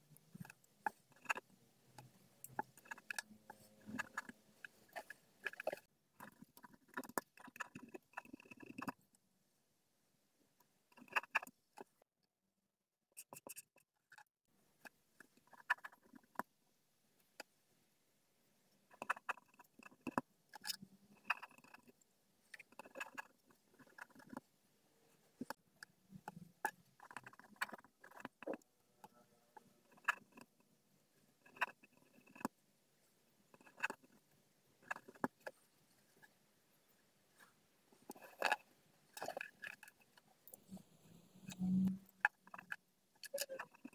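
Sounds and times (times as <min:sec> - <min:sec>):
pen scratching on paper: 0:22.7 - 0:24.4.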